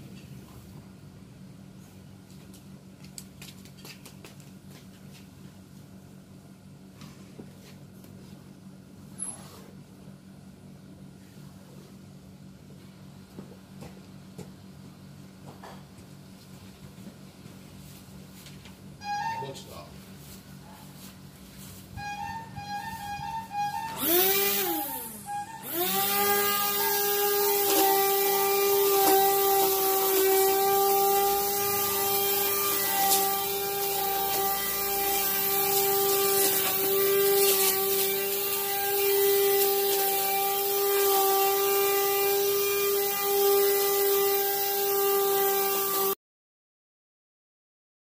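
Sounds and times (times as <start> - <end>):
string trimmer motor whining: 22.0 - 46.2.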